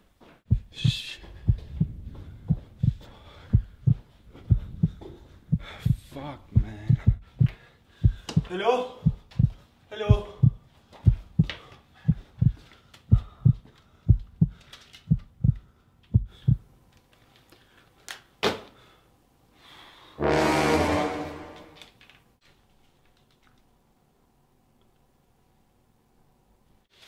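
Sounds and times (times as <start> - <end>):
heartbeat thumps: 0.5 - 16.7.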